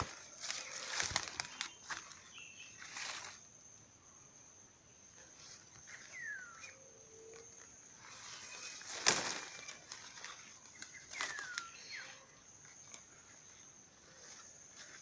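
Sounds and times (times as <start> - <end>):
twig cracking: 0.0 - 2.0, 8.7 - 11.7
pushing through undergrowth: 0.0 - 3.4, 7.3 - 15.0
high insect drone: 0.0 - 15.0.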